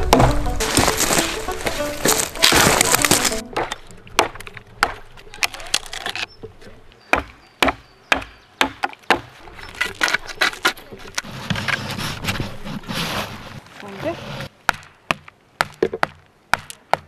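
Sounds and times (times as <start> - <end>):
wooden branch cracking: 0.0 - 6.3.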